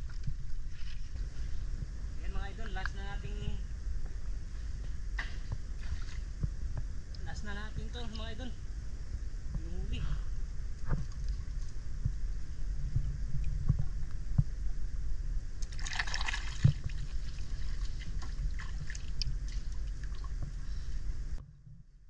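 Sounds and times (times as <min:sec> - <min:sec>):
steady low rumble: 0:00.0 - 0:22.0
hands splashing water: 0:15.6 - 0:20.3.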